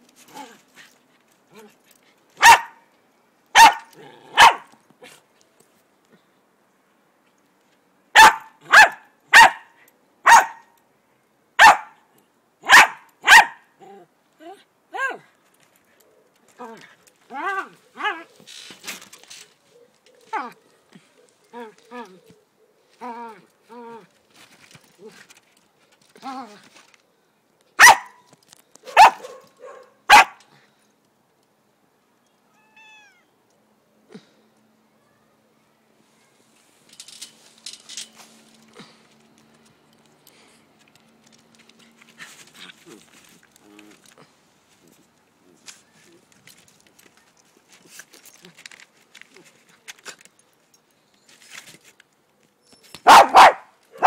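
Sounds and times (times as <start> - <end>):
dog barking: 2.4 - 2.8, 3.6 - 4.7, 8.2 - 10.7, 11.6 - 12.0, 12.6 - 13.6, 27.8 - 28.2, 28.8 - 30.4, 53.0 - 54.0.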